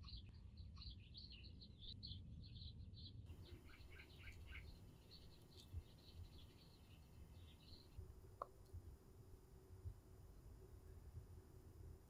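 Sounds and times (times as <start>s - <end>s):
small birds chirping: 0.0s - 9.0s
low steady hum: 0.0s - 12.0s.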